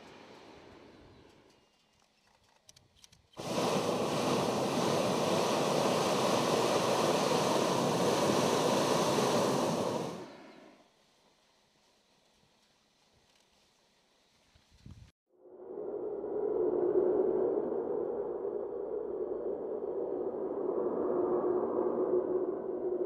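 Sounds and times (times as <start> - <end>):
propane burner roaring: 3.4 - 10.8.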